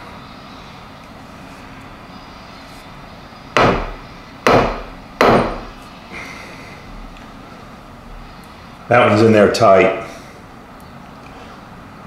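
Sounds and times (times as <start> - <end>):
hammer striking metal punch: 3.6 - 5.7.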